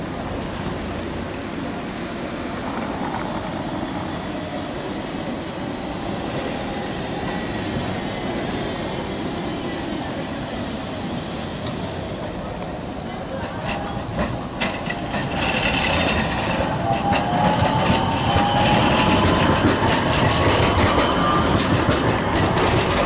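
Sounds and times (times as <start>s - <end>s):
street traffic noise: 0.0s - 23.0s
tram wheels rumbling on track: 0.0s - 23.0s.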